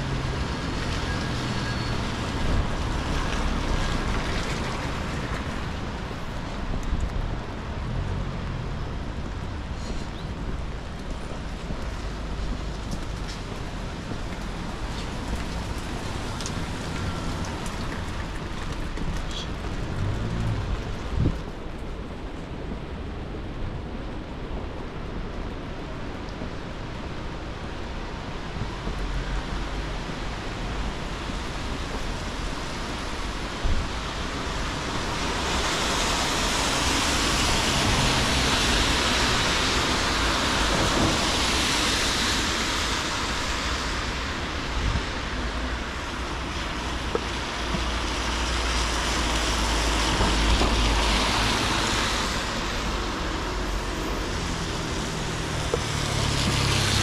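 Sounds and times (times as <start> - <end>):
tyres on wet road: 0.0 - 57.0
rain hiss: 26.6 - 57.0.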